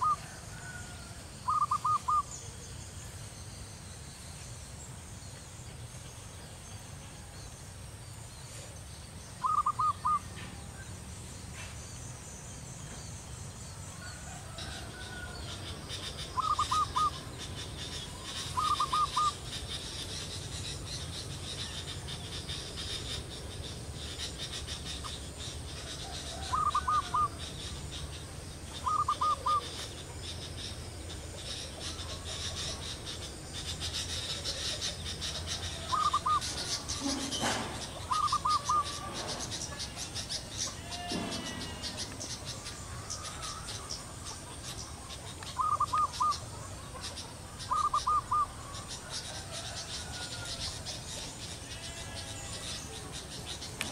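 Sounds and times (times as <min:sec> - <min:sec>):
dove cooing: 0:00.0 - 0:02.3, 0:09.4 - 0:10.4, 0:16.3 - 0:19.5, 0:26.0 - 0:27.4, 0:28.8 - 0:30.1, 0:33.8 - 0:42.5, 0:45.4 - 0:51.0
faint high insect chirr: 0:00.0 - 0:53.9.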